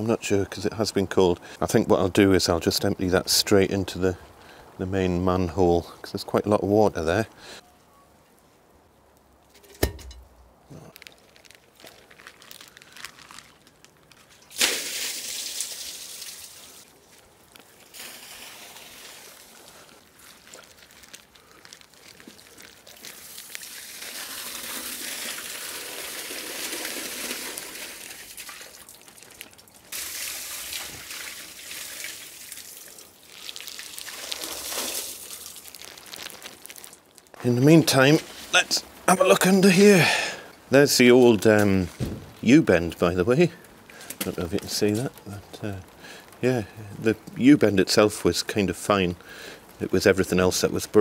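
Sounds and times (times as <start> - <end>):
water pouring into manhole: 14.4 - 16.9, 17.8 - 37.4.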